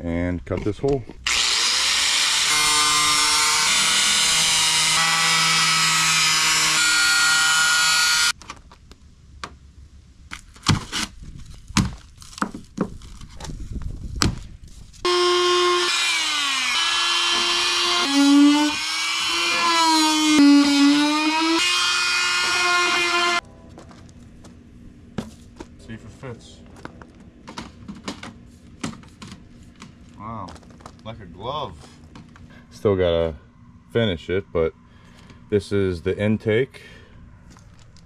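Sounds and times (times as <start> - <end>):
angle grinder whining: 1.2 - 8.4, 15.0 - 23.4.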